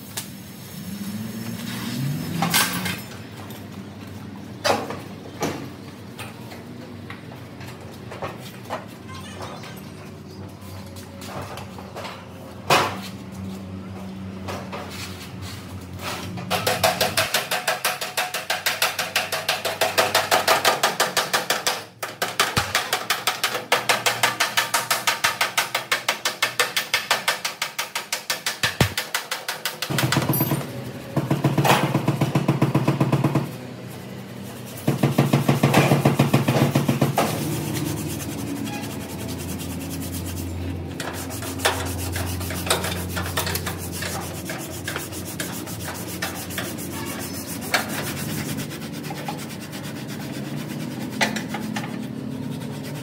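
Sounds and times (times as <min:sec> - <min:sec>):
hand tool rubbing on metal: 0:37.1 - 0:53.0.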